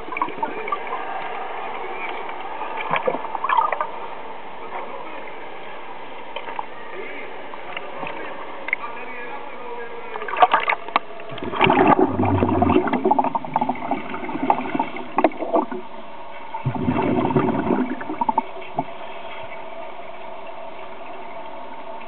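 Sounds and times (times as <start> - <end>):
faint steady hum: 0.0 - 22.0
underwater exhaust bubbles gurgling: 11.3 - 19.6.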